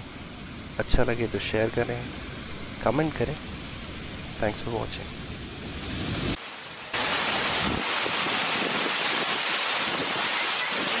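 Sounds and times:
water rushing down waterfall: 6.3s - 11.0s.

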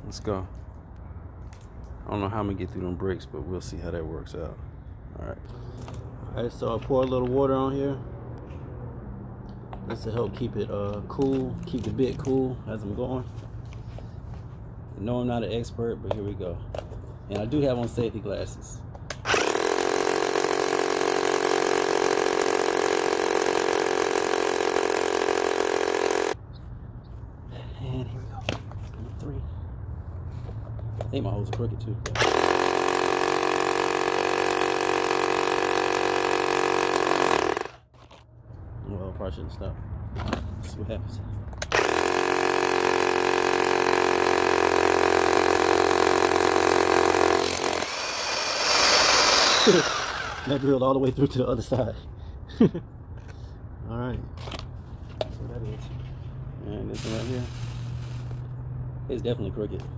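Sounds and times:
power drill boring into concrete: 19.2s - 26.4s, 32.2s - 37.8s, 41.7s - 50.8s.

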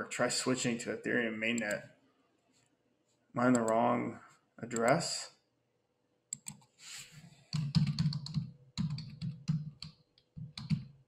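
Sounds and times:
typing on computer keyboard: 7.5s - 11.0s.

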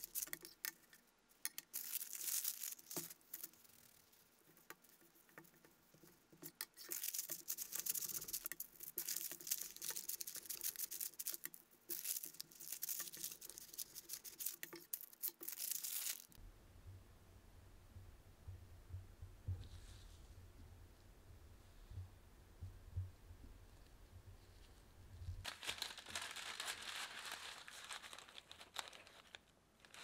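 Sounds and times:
parchment paper crinkling: 0.0s - 16.4s, 25.4s - 30.0s
soft handling sounds: 0.0s - 16.4s, 19.5s - 22.1s, 23.7s - 30.0s.

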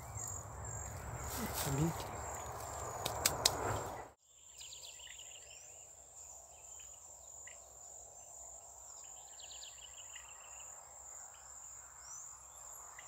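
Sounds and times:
rustling through brush: 0.0s - 4.2s
bird chirps: 0.0s - 11.4s
sharp clicks: 3.0s - 3.7s.

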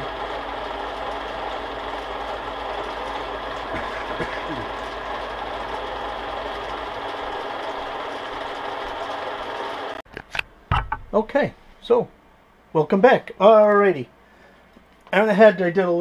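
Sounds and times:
metal lathe running: 0.0s - 10.0s.

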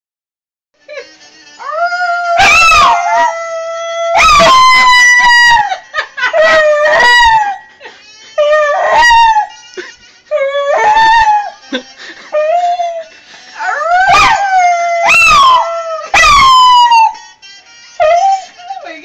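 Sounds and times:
dog howling: 1.6s - 5.7s, 8.5s - 9.5s, 12.5s - 17.2s.

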